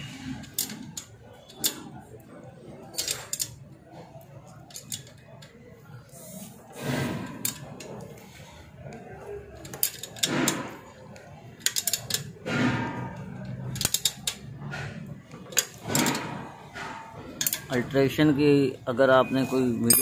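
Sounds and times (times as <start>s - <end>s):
ratchet wrench clicking: 13.4s - 14.4s.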